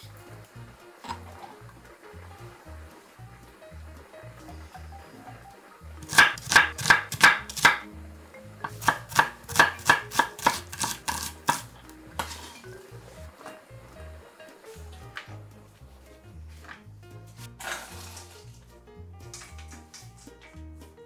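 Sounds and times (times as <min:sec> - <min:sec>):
soft background music: 0:00.0 - 0:21.0
knife chopping on wooden board: 0:06.0 - 0:07.9, 0:08.6 - 0:12.5.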